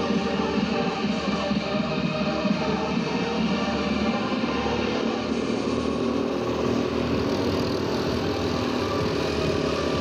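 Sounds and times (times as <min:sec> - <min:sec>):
go-kart engine running: 0:03.7 - 0:10.0.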